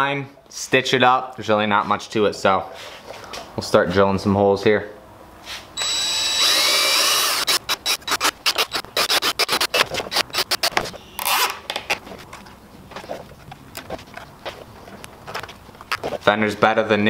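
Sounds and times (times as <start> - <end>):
cordless drill whirring: 5.8 - 11.5
rapid irregular clicking: 6.4 - 10.8.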